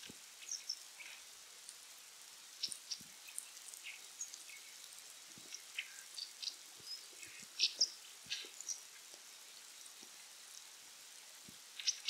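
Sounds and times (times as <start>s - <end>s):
bird chirping: 5.5s - 8.8s, 11.8s - 12.0s.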